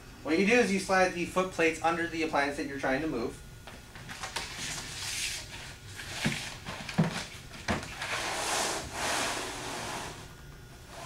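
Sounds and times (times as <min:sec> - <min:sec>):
foot plates scraping on tiled floor: 0:04.6 - 0:10.3.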